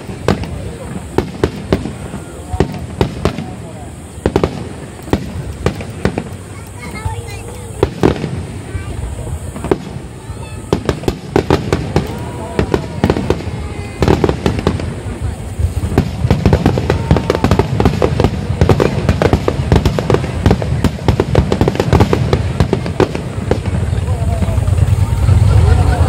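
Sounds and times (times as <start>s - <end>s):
fireworks booming and crackling: 0.0s - 26.0s.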